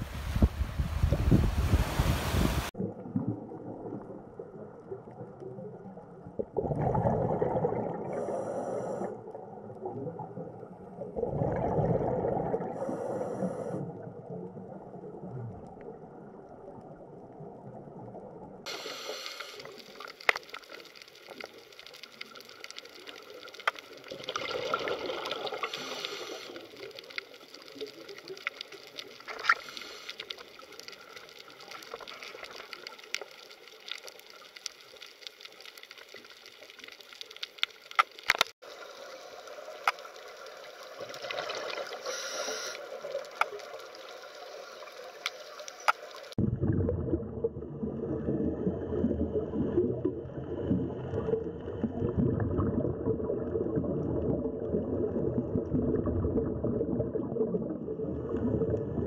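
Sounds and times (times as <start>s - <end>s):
scuba breathing bubbles: 6.3s - 10.4s, 11.0s - 14.3s, 18.7s - 20.2s, 24.0s - 27.2s, 29.3s - 31.0s, 40.9s - 43.3s
underwater crackling hiss: 8.0s - 9.3s, 12.6s - 13.8s, 18.7s - 46.4s.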